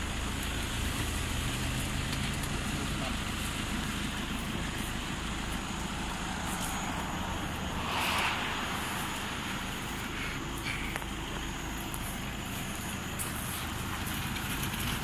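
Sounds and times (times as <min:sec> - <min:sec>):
road traffic noise: 0:00.0 - 0:15.0
vehicle passing: 0:03.1 - 0:11.2.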